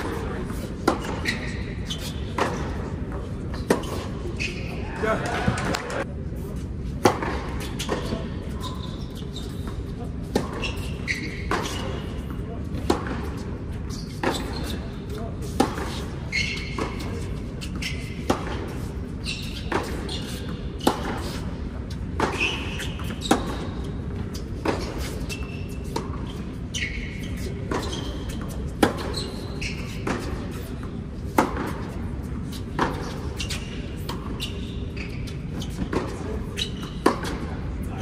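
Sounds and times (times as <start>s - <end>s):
racket striking tennis ball: 0.0s - 1.4s, 3.5s - 4.1s, 10.2s - 13.4s, 14.1s - 18.9s, 19.5s - 26.3s, 27.6s - 30.4s, 31.2s - 34.4s, 35.5s - 37.6s
tennis ball bouncing: 0.0s - 4.1s, 9.6s - 13.4s, 14.1s - 26.4s, 27.4s - 37.7s
shoe squeaks on court: 0.0s - 5.5s, 7.1s - 38.0s.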